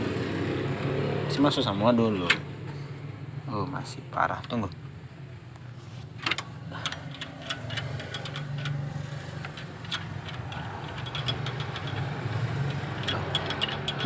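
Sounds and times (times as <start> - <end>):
clicks and taps of tools: 5.6 - 14.0
car engine idling roughly: 6.5 - 14.0.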